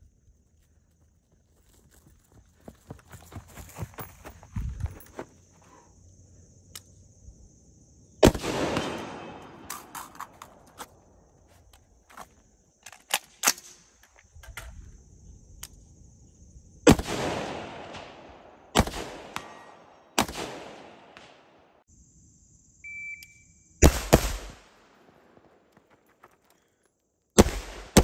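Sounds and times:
rifle shots with echo: 0:08.2 - 0:09.9, 0:16.9 - 0:21.7, 0:23.8 - 0:25.5, 0:27.4 - 0:28.0.

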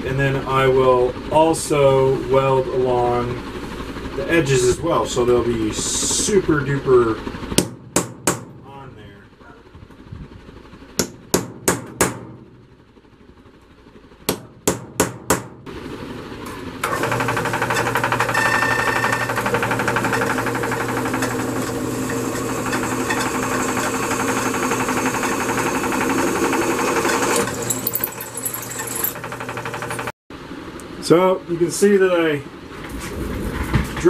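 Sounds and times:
hammer striking punch on steel: 0:07.6 - 0:08.7, 0:11.0 - 0:12.7, 0:14.3 - 0:15.6
drill press drilling steel: 0:16.8 - 0:30.1.

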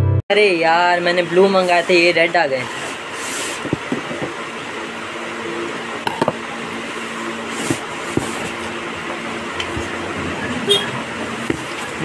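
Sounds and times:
cardboard and plastic rustling: 0:07.4 - 0:08.8, 0:11.3 - 0:12.0.

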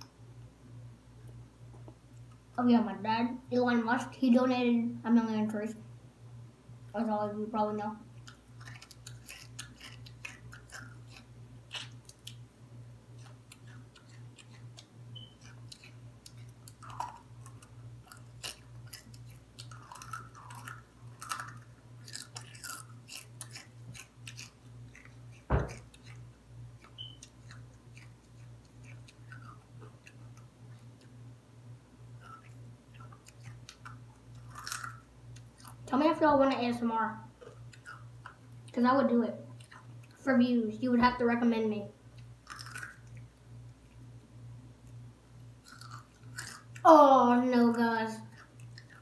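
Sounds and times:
low steady hum: 0:00.0 - 0:49.0
girl chewing food: 0:08.0 - 0:36.0, 0:37.2 - 0:40.3, 0:41.9 - 0:49.0.

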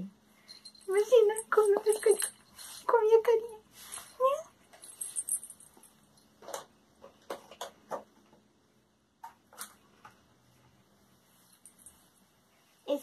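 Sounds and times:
soft clicks and rustles: 0:09.2 - 0:12.7.

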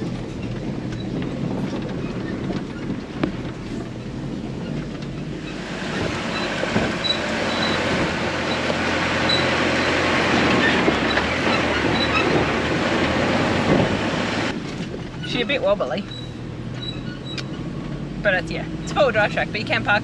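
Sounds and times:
tyres rolling on dirt and stones: 0:00.0 - 0:16.0
diesel engine running low: 0:00.0 - 0:20.0.

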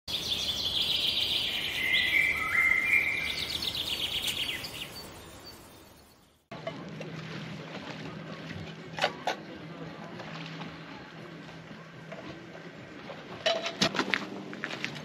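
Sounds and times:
birdsong whistles and trill: 0:00.1 - 0:06.4.

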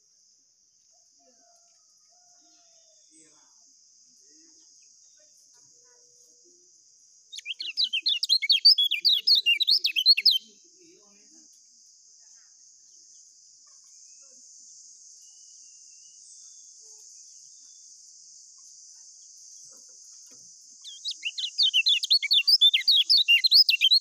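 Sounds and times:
faint high-pitched hiss: 0:00.0 - 0:24.0
bird chirping rapidly: 0:07.3 - 0:10.5, 0:20.8 - 0:24.0.

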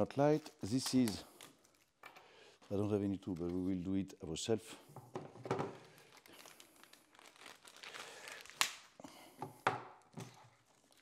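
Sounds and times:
plastic bag crinkling: 0:05.7 - 0:09.0, 0:10.3 - 0:11.0.

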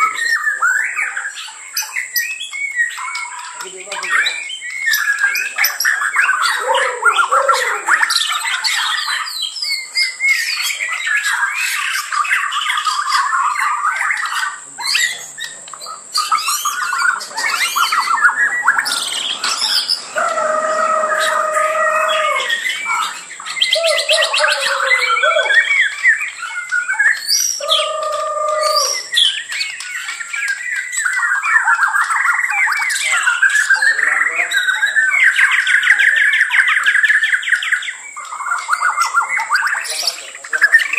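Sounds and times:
songbirds chorus: 0:00.0 - 0:40.9.

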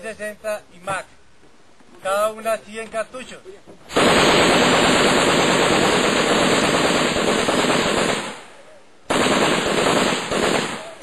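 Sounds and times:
machine gun automatic fire: 0:03.9 - 0:08.4, 0:09.1 - 0:11.0.

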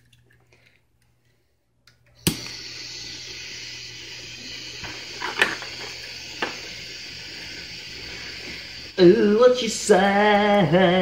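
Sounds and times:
torch igniter click: 0:02.2 - 0:02.6
torch flame hissing: 0:02.2 - 0:11.0.

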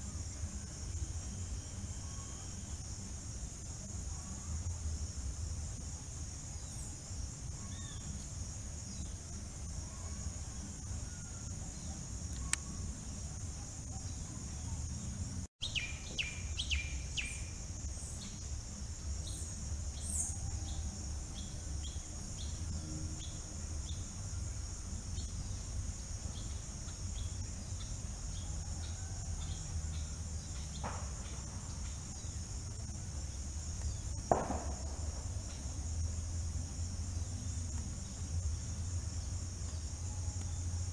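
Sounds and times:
insects trilling: 0:00.0 - 0:40.9.

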